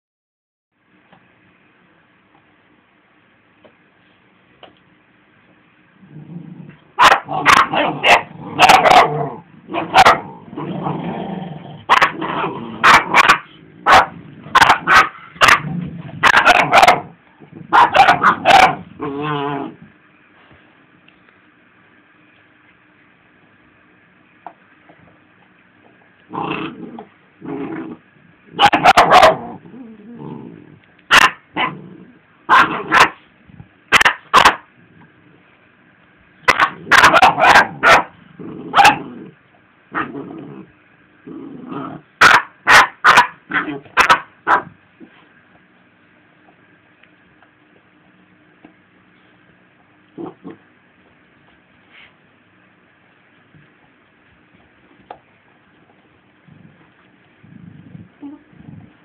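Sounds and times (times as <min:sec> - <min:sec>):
dog growling low: 0:06.0 - 0:12.8, 0:15.3 - 0:16.2, 0:18.7 - 0:19.9, 0:26.3 - 0:28.3, 0:29.2 - 0:30.9, 0:31.6 - 0:32.2, 0:38.2 - 0:39.4, 0:40.0 - 0:42.1, 0:50.1 - 0:50.7, 0:56.4 - 0:59.0
dog barking sharply: 0:07.0 - 0:09.1, 0:09.8 - 0:10.2, 0:11.9 - 0:12.2, 0:12.8 - 0:15.6, 0:16.2 - 0:17.1, 0:17.7 - 0:18.8, 0:28.6 - 0:29.4, 0:31.1 - 0:31.4, 0:32.5 - 0:33.2, 0:33.9 - 0:34.6, 0:36.5 - 0:38.1, 0:42.2 - 0:44.7.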